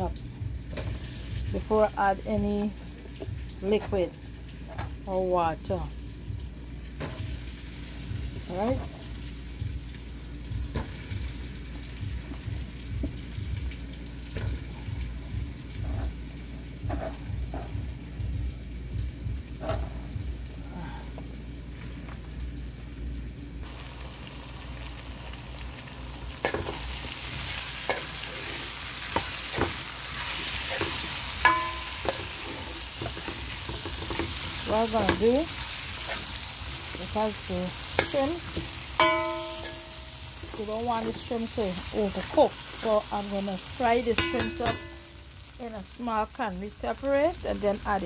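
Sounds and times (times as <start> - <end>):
food sizzling in hot oil: 0.0 - 20.5, 23.6 - 48.0
spoon scraping frying pan: 26.4 - 41.3, 44.2 - 45.2.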